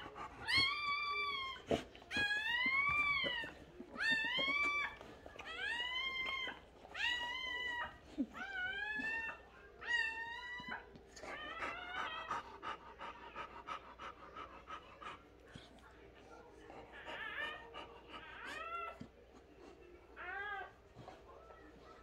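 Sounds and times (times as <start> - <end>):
dog panting: 0.0 - 9.2, 11.0 - 20.1
puppy crying: 0.0 - 12.7, 16.8 - 19.1.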